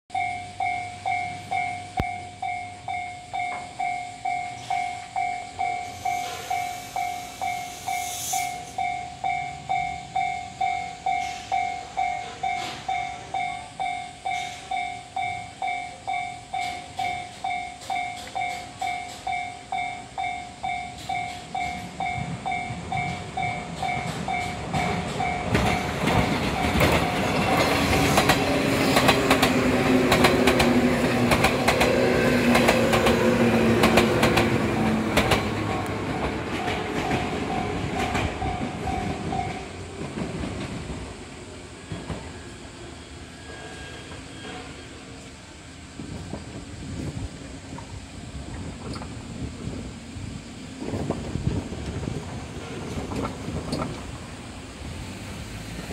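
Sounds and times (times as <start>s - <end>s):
level crossing warning bell: 0.1s - 30.0s, 32.6s - 39.9s
electric train approaching: 0.1s - 55.9s
train wheels clicking over rail joints: 0.2s - 42.5s, 46.0s - 55.9s.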